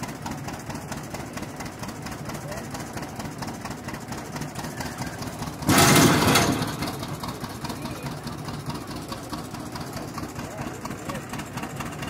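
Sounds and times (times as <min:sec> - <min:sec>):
tractor engine running: 0:00.0 - 0:12.0
loud burst of noise: 0:05.7 - 0:06.8.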